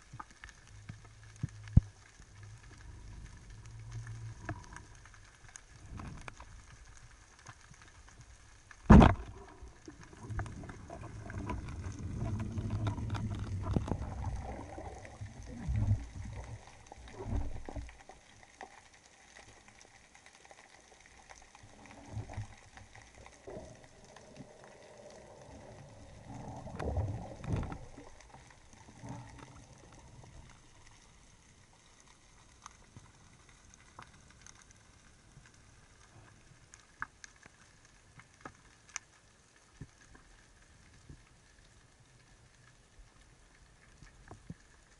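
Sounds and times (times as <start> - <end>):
muffled underwater rumbling: 0.0 - 18.3, 21.4 - 36.5
faint hiss: 0.0 - 44.9
underwater thumps: 8.9 - 9.7.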